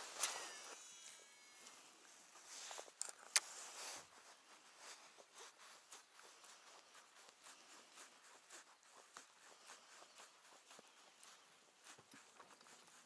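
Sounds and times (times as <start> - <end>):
fishing reel ticking: 0.0 - 1.8.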